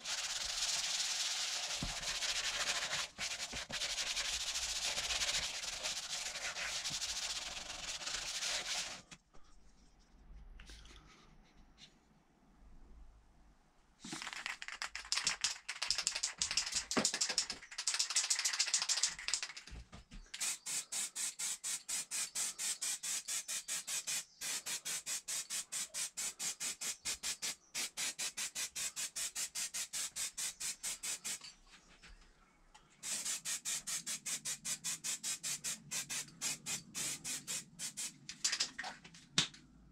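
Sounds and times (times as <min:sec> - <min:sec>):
aerosol spray paint hissing: 0:00.0 - 0:09.0, 0:20.4 - 0:31.4, 0:33.0 - 0:38.6
sandpaper scraping plastic: 0:00.0 - 0:09.1.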